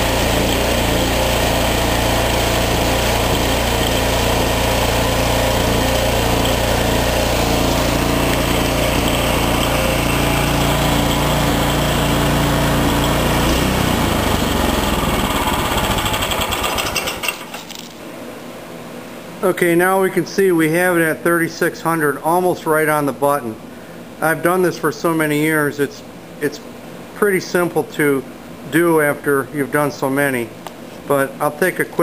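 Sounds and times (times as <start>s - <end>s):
snowblower engine running: 0.0s - 17.7s.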